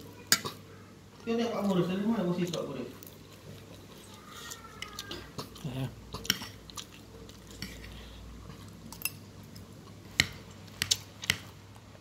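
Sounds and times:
person chewing food: 2.5 - 12.0.

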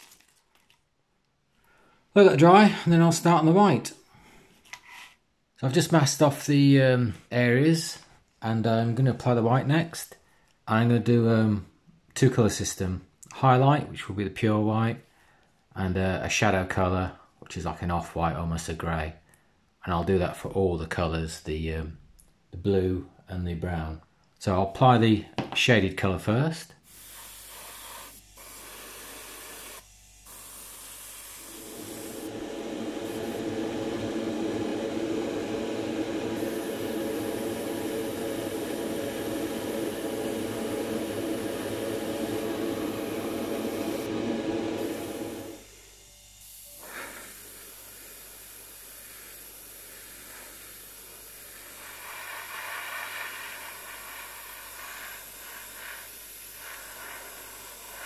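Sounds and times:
airbrush hissing: 26.9 - 58.0
steady hum: 28.2 - 58.0.

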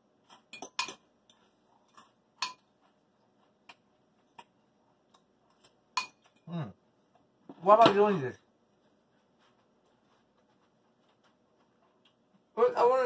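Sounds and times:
fork clinking against glass bowl: 0.4 - 1.0, 1.9 - 2.7, 5.5 - 6.5.

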